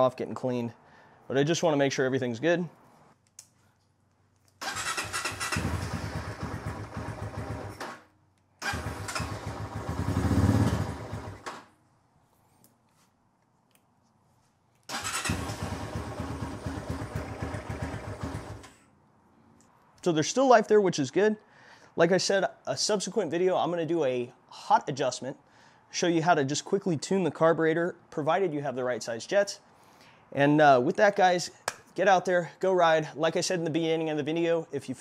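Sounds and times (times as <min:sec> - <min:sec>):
motorcycle engine running: 0:05.3 - 0:07.8, 0:08.7 - 0:11.4, 0:15.3 - 0:18.6.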